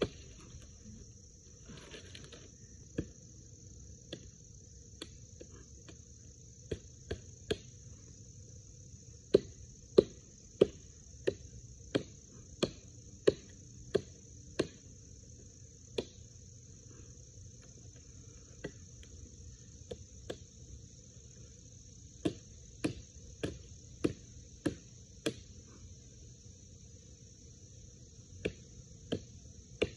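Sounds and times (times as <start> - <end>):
tomahawk chopping wood: 4.0 - 7.8, 9.2 - 16.3, 22.1 - 25.6, 28.4 - 29.9.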